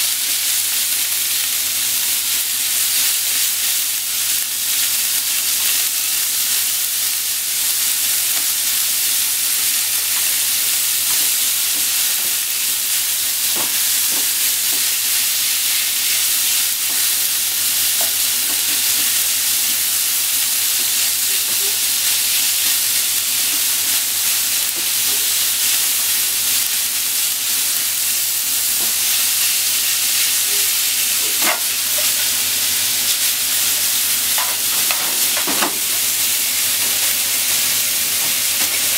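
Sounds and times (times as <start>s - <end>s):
meat sizzling in a frying pan: 0.0s - 38.9s
chopsticks tapping a pan: 13.4s - 15.0s, 18.0s - 19.2s, 30.5s - 32.4s, 34.4s - 36.1s.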